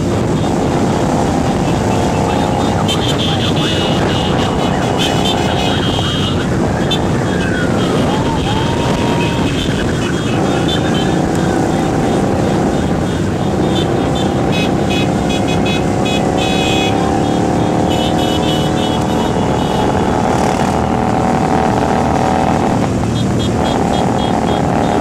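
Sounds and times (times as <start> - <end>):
motorcycle engines droning: 0.0 - 25.0
wind and road noise: 0.0 - 25.0.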